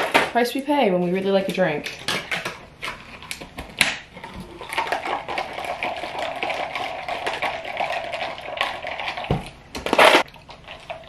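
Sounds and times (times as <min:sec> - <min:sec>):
liquid pouring over ice: 0:04.4 - 0:09.4, 0:10.2 - 0:11.0.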